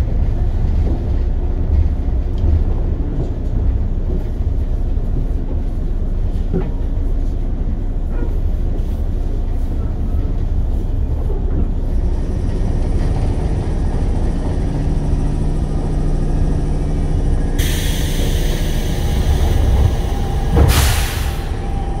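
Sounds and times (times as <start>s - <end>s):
electric train rumbling: 0.0s - 22.0s
blast of air: 20.6s - 21.7s.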